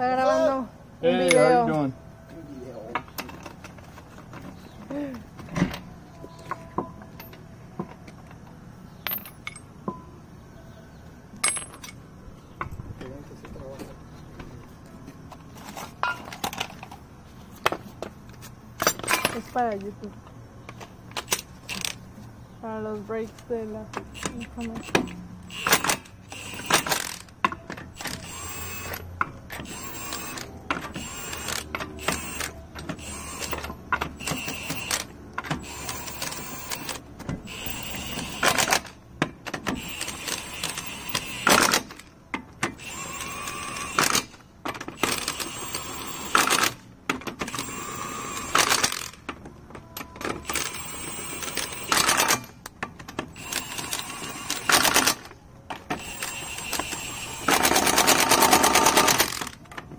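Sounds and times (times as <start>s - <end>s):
impact wrench rattling: 24.8s - 27.2s, 28.0s - 29.0s, 29.6s - 35.0s, 35.6s - 38.9s, 39.8s - 41.8s, 42.8s - 44.3s, 44.9s - 46.7s, 47.4s - 49.1s, 50.5s - 52.4s, 53.4s - 55.2s, 56.0s - 58.2s.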